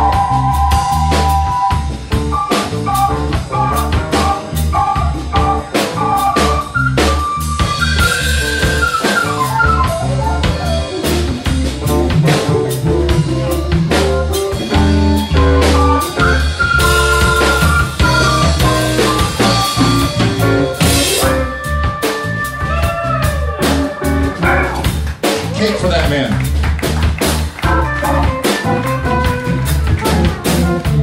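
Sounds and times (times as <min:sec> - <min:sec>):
drum kit steady beat: 0:00.0 - 0:31.0
live band playing instrumental: 0:00.0 - 0:31.0.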